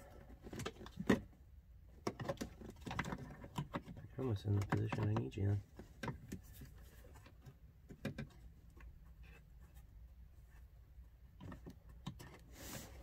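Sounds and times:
plastic clicks and knocks: 0.4s - 1.4s, 2.0s - 6.5s, 7.2s - 8.9s.

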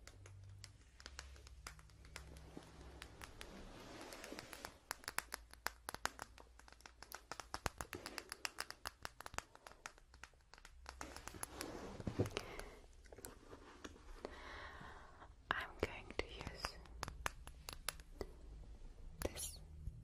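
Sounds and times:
small sharp clicks and taps: 0.0s - 14.0s, 15.5s - 18.4s
soft rubbing and rustling: 0.8s - 5.1s, 10.8s - 14.2s.

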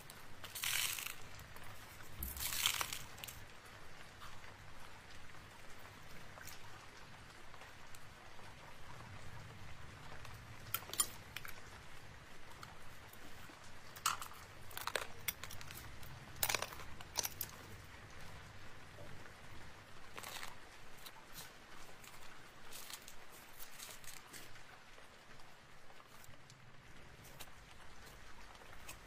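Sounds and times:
paper crinkling: 0.0s - 3.4s, 13.3s - 17.8s, 20.1s - 24.8s
fingernails tapping and scratching rhinestones: 0.4s - 1.3s, 2.2s - 3.4s.

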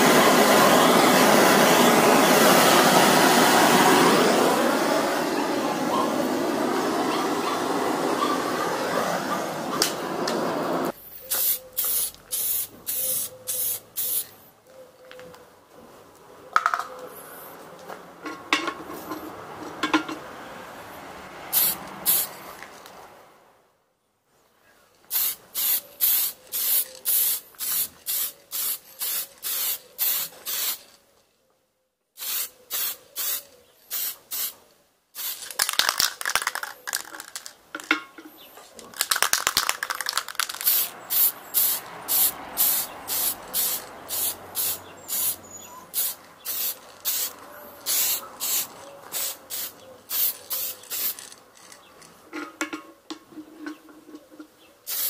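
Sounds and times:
hand sprayer hissing: 40.6s - 51.3s.

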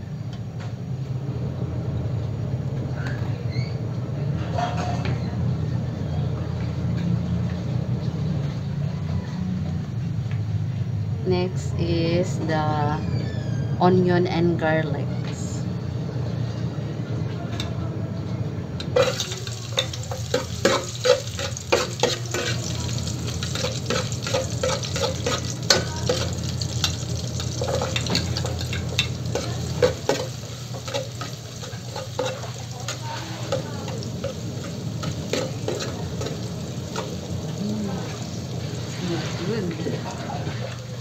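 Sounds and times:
onion sizzling in hot oil: 18.9s - 41.0s
metal spatula scraping pot: 19.0s - 37.2s.

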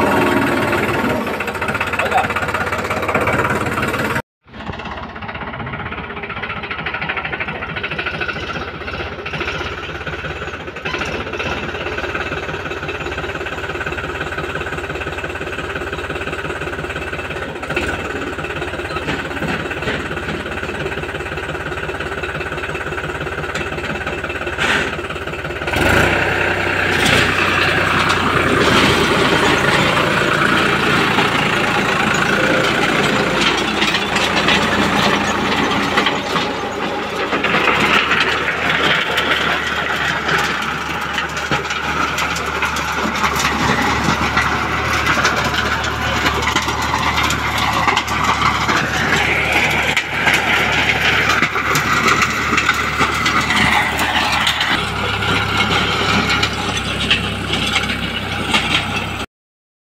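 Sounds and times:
tractor diesel engine running: 0.0s - 59.3s.

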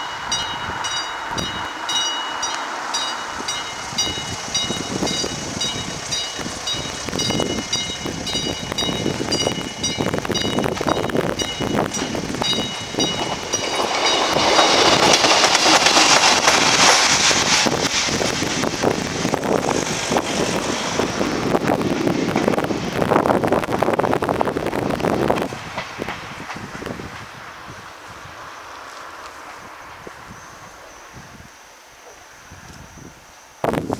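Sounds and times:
level crossing warning bell: 0.0s - 14.5s
train wheels clicking on track: 0.0s - 30.9s
passenger train rumble: 0.0s - 33.9s.

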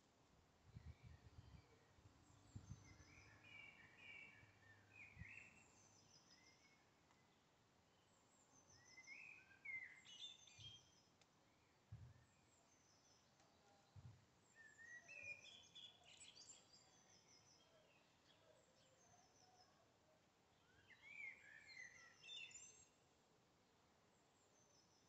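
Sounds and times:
quiet steady hiss: 0.0s - 16.5s
songbird chirps and trills: 0.0s - 25.0s.

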